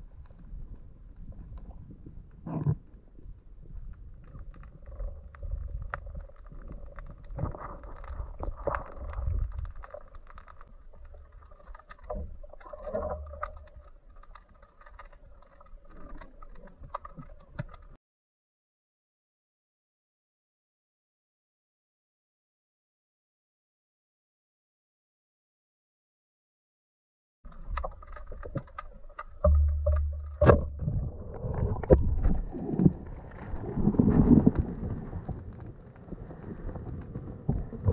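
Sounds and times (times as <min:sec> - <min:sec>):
sharp clicks and crackles: 0:00.0 - 0:18.0, 0:27.5 - 0:37.9
underwater rumble of moving water: 0:00.0 - 0:18.0, 0:27.5 - 0:37.9.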